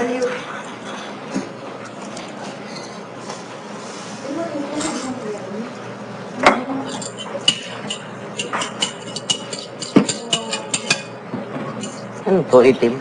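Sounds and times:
utensil clinking against ceramic bowl: 0:06.9 - 0:11.2, 0:11.8 - 0:12.1.

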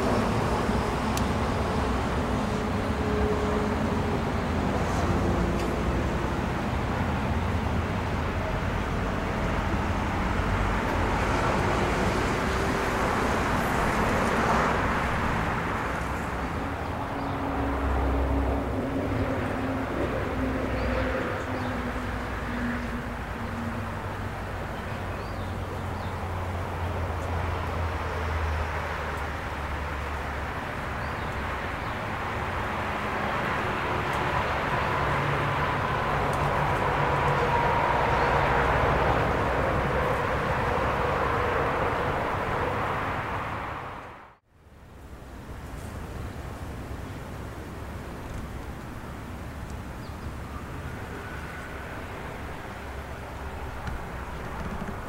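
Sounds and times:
distant engine hum: 0:00.0 - 0:55.0.

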